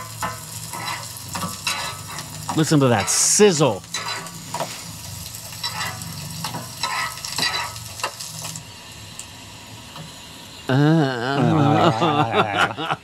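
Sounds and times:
spatula scraping griddle: 0.0 - 8.5
bread sizzling on griddle: 0.0 - 13.0.

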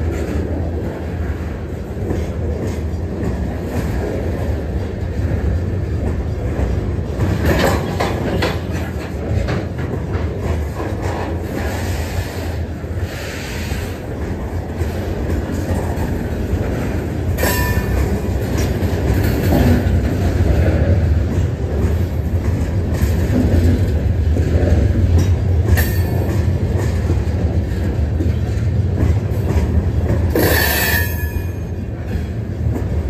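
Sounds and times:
train wheels rumbling: 0.0 - 33.0
wheels clicking over rail joints: 1.9 - 12.0, 13.9 - 33.0.

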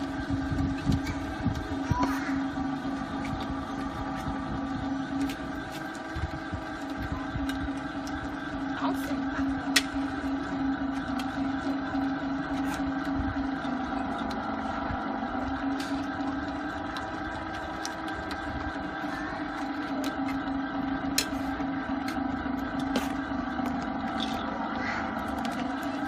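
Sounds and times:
electric motor hum: 0.0 - 26.0.

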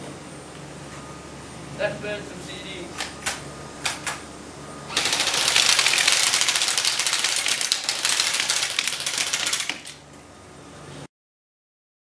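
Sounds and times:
airsoft rifles firing full auto: 4.9 - 10.0
pellets hitting discs: 5.0 - 10.0.

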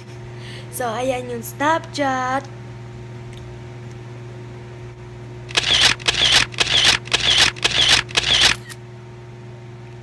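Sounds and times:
phone camera shutter: 5.5 - 8.8.

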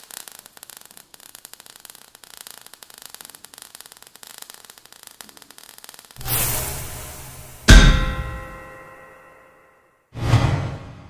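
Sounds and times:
faint hiss: 0.0 - 8.6
crackling sparks: 0.0 - 9.1.

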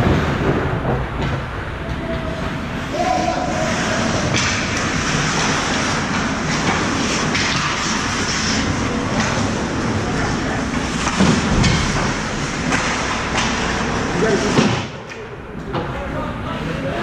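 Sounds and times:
hockey sticks and puck clacking: 0.0 - 16.0
skate blades scraping ice: 2.8 - 14.6.

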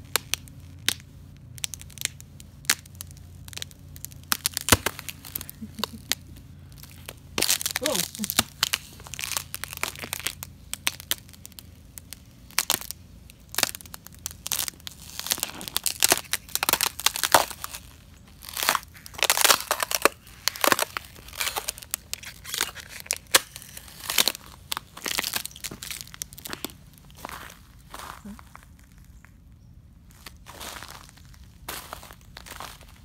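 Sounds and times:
boots crunching on ice: 4.4 - 11.4, 13.6 - 29.2, 30.1 - 33.0.

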